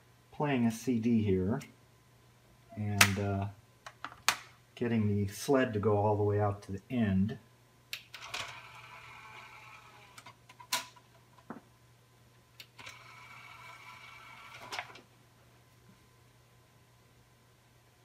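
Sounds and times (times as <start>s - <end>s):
disc tray motor whirring: 8.2s - 10.4s, 12.8s - 15.0s.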